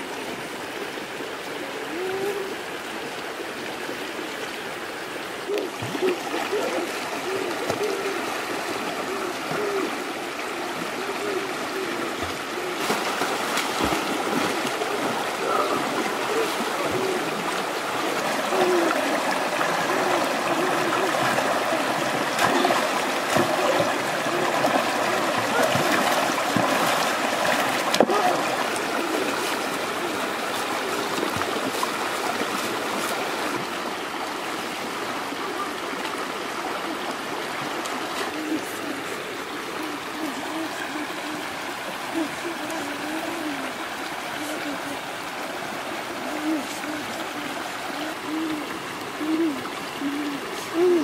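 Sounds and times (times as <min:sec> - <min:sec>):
stream running over stones: 0:00.0 - 0:51.0
people splashing in water: 0:05.4 - 0:33.9.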